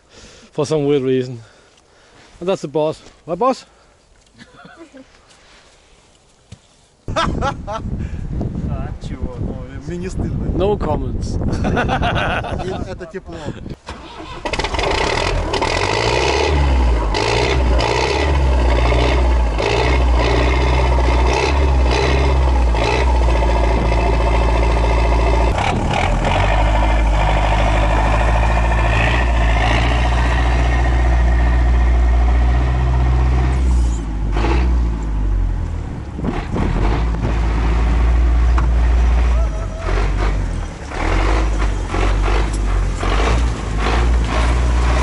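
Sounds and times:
tracked vehicle engine under load: 13.5s - 45.0s
tracks clanking: 13.9s - 45.0s.

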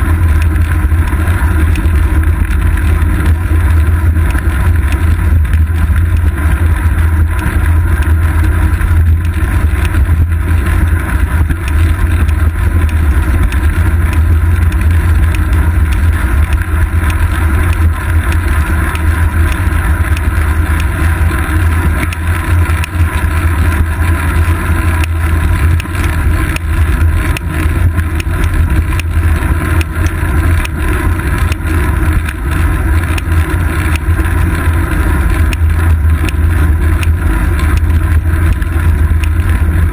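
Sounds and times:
bicycle tyre road noise: 0.0s - 39.9s.

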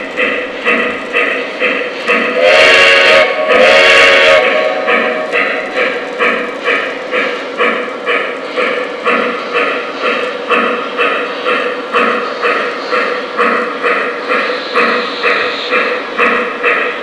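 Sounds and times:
model steam locomotive chuffing: 0.0s - 17.0s.

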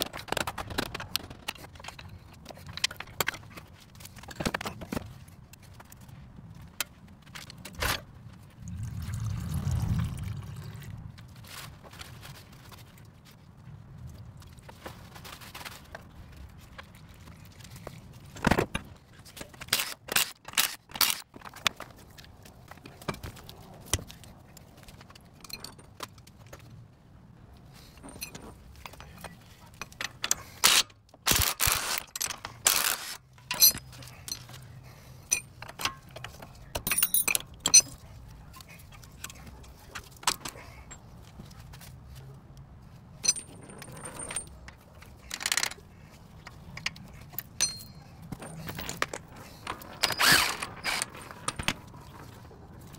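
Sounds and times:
metal hand tools clinking: 31.4s - 34.6s, 35.3s - 38.0s, 43.2s - 44.7s, 47.3s - 51.6s.

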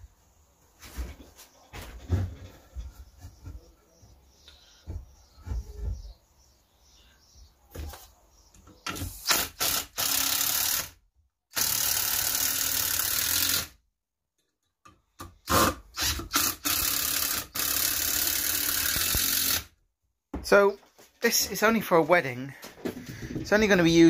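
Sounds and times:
impact driver driving screws: 8.9s - 13.8s, 15.4s - 19.7s.

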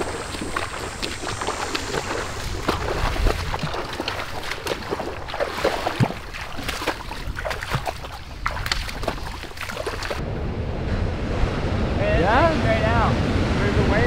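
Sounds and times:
footsteps: 0.0s - 10.2s
wind on microphone: 0.0s - 14.0s
heavy surf rumbling: 10.2s - 14.0s.

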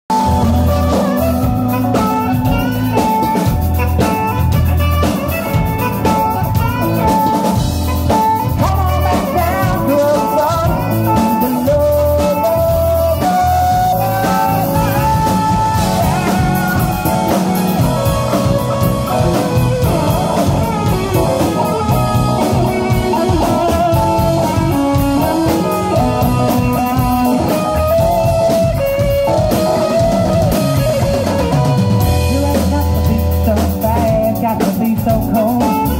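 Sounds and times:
live rock band playing: 0.1s - 35.9s.

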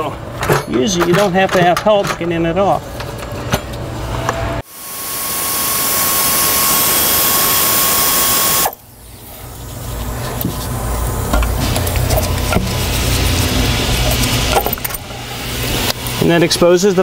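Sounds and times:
air ratchet whirring: 4.6s - 8.8s.

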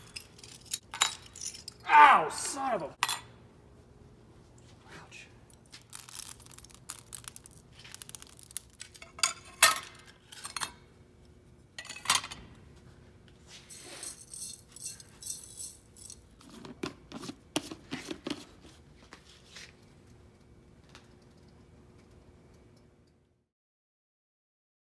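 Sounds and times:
glass clinks and scrapes: 0.0s - 1.8s, 13.7s - 16.2s.

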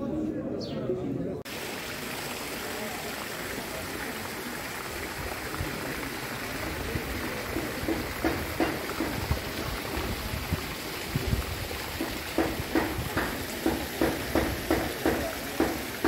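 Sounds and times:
running water hissing: 1.5s - 16.0s
soft knocks: 12.0s - 15.8s.

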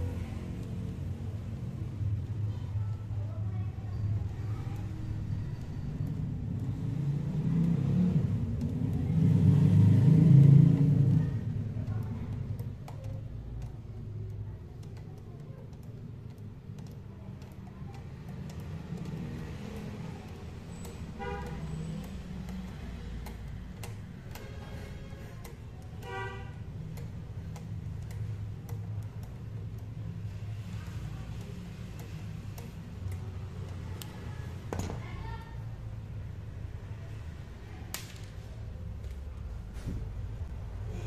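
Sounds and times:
steady traffic rumble: 0.0s - 41.0s
passing vehicle engine rumble: 5.9s - 12.2s
car horn toot: 26.0s - 26.6s.

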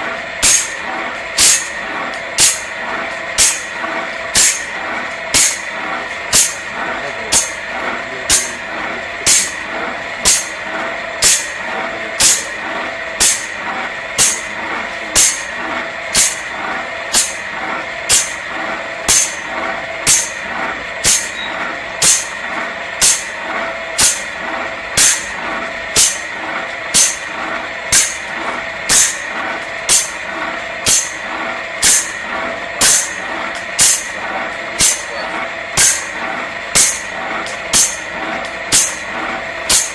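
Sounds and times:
saw blade grinding hiss: 0.4s - 0.8s, 1.4s - 1.7s, 4.4s - 4.7s, 9.3s - 9.6s, 13.2s - 13.5s, 15.2s - 15.5s, 16.2s - 16.4s, 17.1s - 17.4s, 19.1s - 19.4s, 20.0s - 20.4s, 21.0s - 21.4s, 22.0s - 22.3s, 23.0s - 23.3s, 26.0s - 26.2s, 26.9s - 27.2s, 28.9s - 29.2s, 30.8s - 31.2s, 31.8s - 32.2s, 32.8s - 33.2s, 33.8s - 34.1s, 35.8s - 36.1s, 37.7s - 38.1s.

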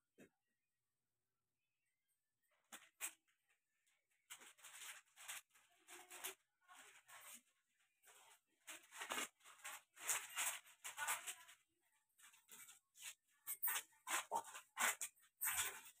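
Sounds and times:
plastic packaging crinkling: 4.2s - 7.5s.

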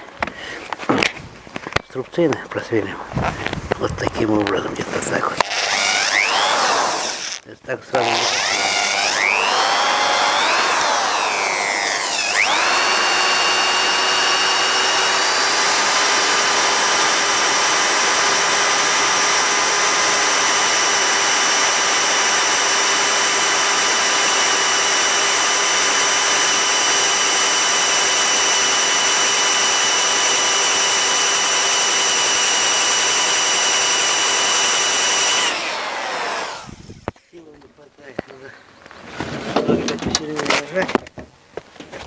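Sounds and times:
electric drill boring through steel: 5.3s - 37.1s.

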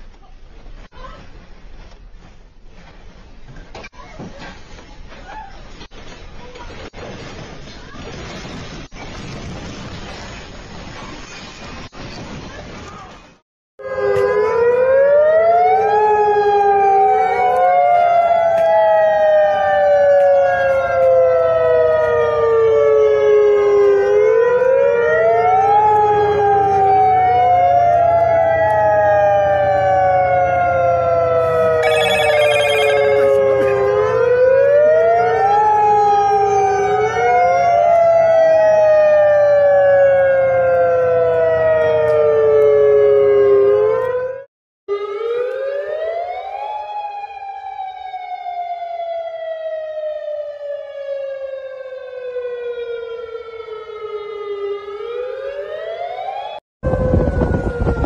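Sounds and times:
fainter second siren wail: 13.8s - 58.0s
warning siren wailing: 13.8s - 58.0s
rapid high-pitched pulsing: 31.8s - 33.1s.

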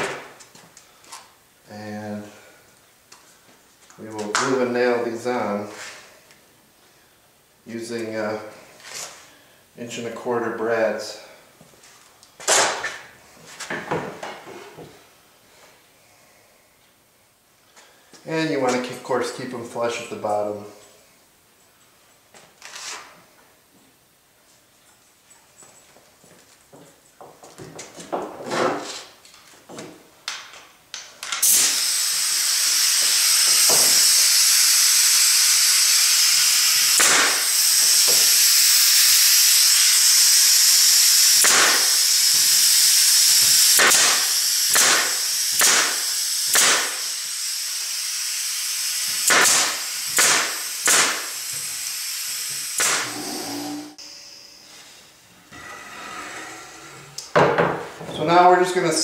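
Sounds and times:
nail gun shots: 12.5s - 13.0s, 31.4s - 32.0s, 36.9s - 37.7s, 41.4s - 42.1s, 43.7s - 47.2s, 49.1s - 51.4s, 52.8s - 53.2s
compressed air hiss: 31.4s - 54.0s.

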